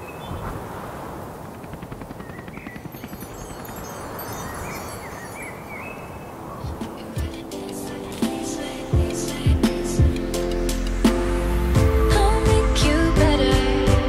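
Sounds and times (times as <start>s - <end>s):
steady rushing hiss: 0.0s - 14.0s
fast rattling: 1.3s - 5.1s
bird chirps: 2.2s - 6.9s.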